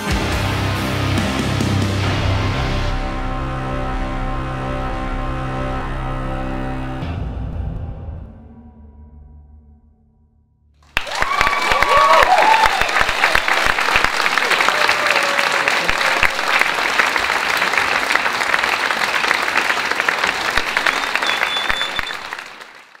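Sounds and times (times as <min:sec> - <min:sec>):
audience applauding: 0:10.8 - 0:23.0
cheers: 0:10.9 - 0:23.0.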